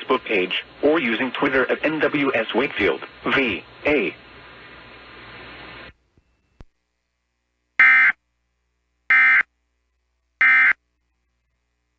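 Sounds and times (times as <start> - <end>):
broadcast hiss: 0.0 - 11.9
harsh buzzing digital tone bursts: 7.8 - 8.2.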